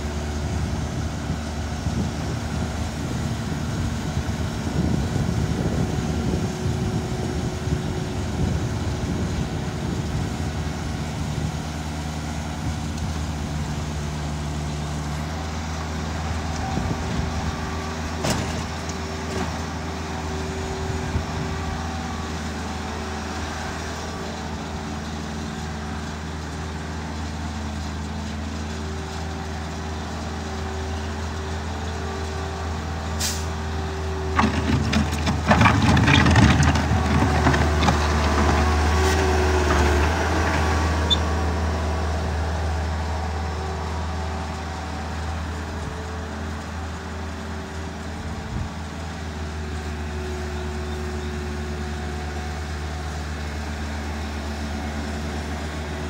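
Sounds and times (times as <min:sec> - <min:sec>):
diesel engines running: 0:00.0 - 0:56.0
loud clatter: 0:34.4 - 0:38.7.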